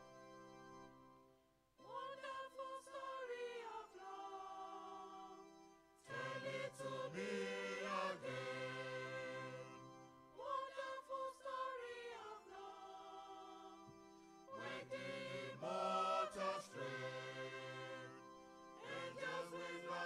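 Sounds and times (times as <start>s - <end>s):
choir singing: 1.9s - 13.9s, 14.5s - 20.0s.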